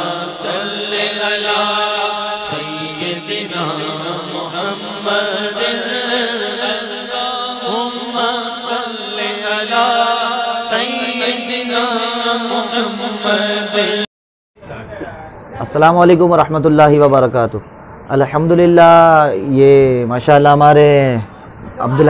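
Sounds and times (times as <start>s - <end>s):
steady held drone: 0.0s - 14.0s
person singing devotional song: 0.0s - 14.1s.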